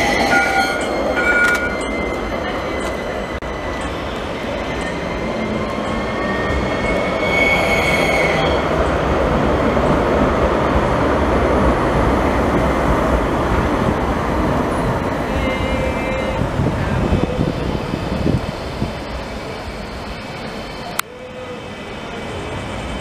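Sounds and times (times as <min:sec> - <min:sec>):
tram wheels rumbling on rails: 0:00.0 - 0:23.0
high-pitched wheel squeal: 0:05.2 - 0:08.6.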